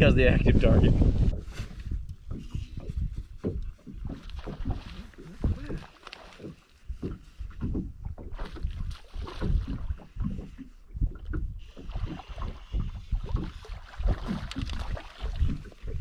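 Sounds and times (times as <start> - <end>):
water lapping against hull: 0.0 - 16.0
wind buffeting microphone: 0.0 - 16.0.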